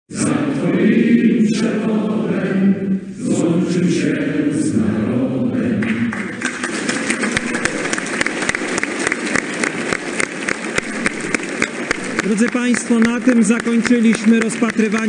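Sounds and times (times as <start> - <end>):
group of voices singing: 0.1 - 6.3.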